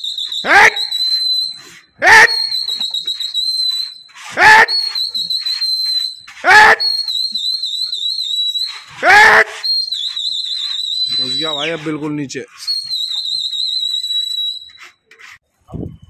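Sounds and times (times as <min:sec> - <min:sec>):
wavering high whistle: 0:00.0 - 0:15.0
man shouting: 0:00.4 - 0:01.0, 0:02.0 - 0:02.6, 0:04.3 - 0:05.0, 0:06.4 - 0:07.0, 0:09.0 - 0:09.6.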